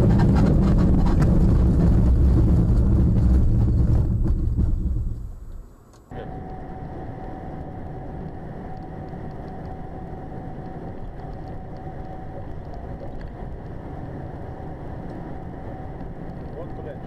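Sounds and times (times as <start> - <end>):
car engine and road hum: 0.0 - 17.0
faint steady whine: 0.0 - 17.0.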